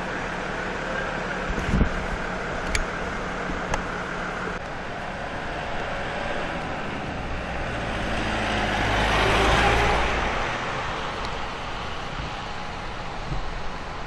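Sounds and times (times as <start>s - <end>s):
tyres hissing on wet road: 0.0s - 14.0s
vehicle engine hum: 0.0s - 14.0s.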